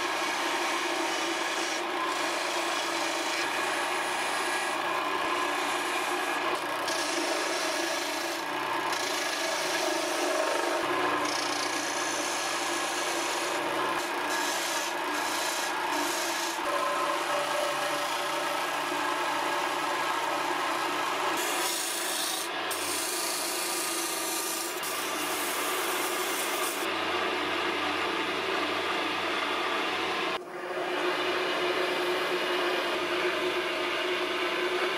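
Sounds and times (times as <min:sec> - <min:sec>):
lathe tool rasping wood: 0:00.0 - 0:27.5.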